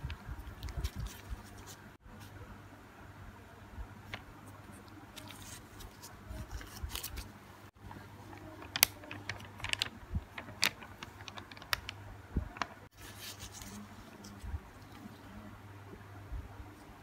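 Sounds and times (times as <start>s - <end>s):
faint low hum: 0.0s - 17.0s
plastic wrapper crinkling: 8.3s - 13.8s.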